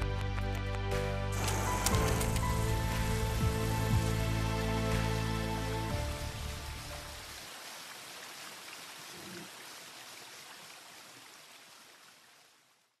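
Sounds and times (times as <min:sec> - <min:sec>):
steady rushing hiss: 0:01.3 - 0:07.4.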